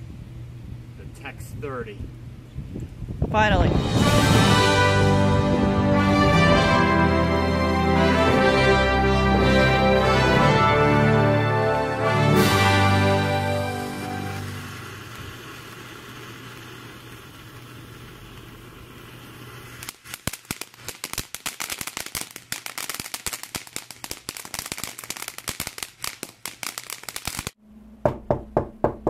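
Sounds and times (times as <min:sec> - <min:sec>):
firework hissing: 0:12.5 - 0:27.6
firework crackling pops: 0:12.6 - 0:27.6
sharp knocks: 0:28.0 - 0:29.0.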